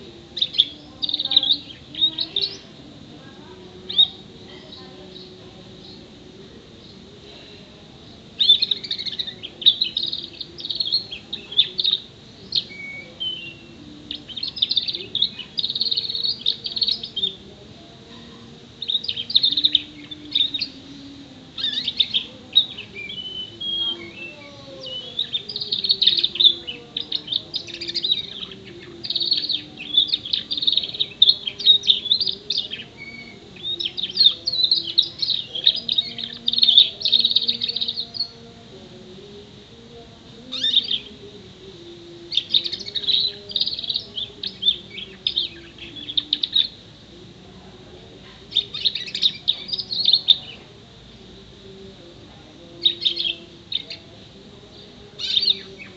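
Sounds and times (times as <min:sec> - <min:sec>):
canary chirping and trilling: 0:08.4 - 0:17.4, 0:18.8 - 0:38.4, 0:40.4 - 0:46.8, 0:48.5 - 0:50.6, 0:52.8 - 0:54.1, 0:54.8 - 0:55.9.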